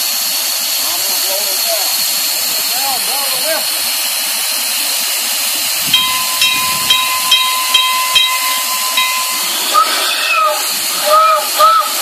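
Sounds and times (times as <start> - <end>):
steam hissing: 0.0 - 12.0
short ringing sound: 5.9 - 9.7.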